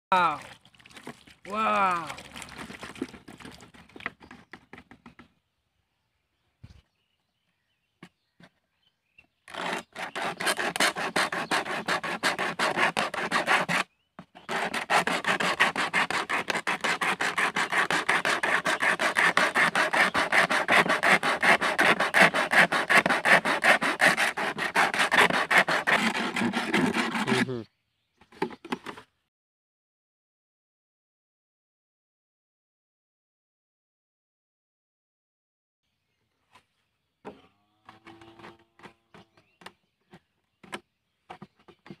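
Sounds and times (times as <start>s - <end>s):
blade sawing through plastic bottle: 2.2s - 5.2s, 9.5s - 27.6s, 37.9s - 42.0s.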